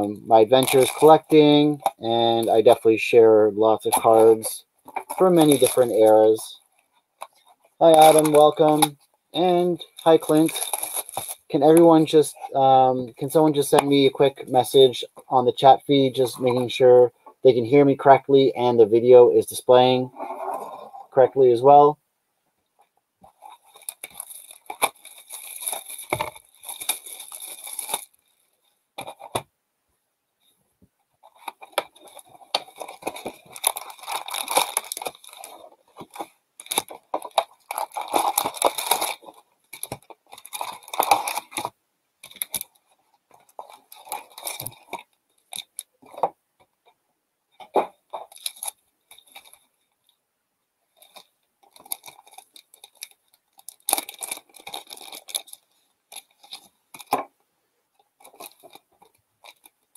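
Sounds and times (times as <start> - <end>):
foil packs crinkling and rustling: 0.4 - 1.9, 3.8 - 6.5, 7.3 - 9.0, 9.6 - 12.2, 23.3 - 28.2, 31.3 - 46.3, 51.0 - 57.2.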